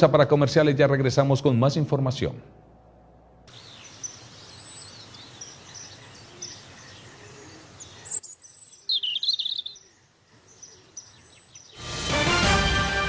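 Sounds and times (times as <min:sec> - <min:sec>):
outdoor ambient hiss: 0:00.0 - 0:13.0
birds chirping: 0:03.4 - 0:11.9
warbling bird call: 0:03.5 - 0:11.8.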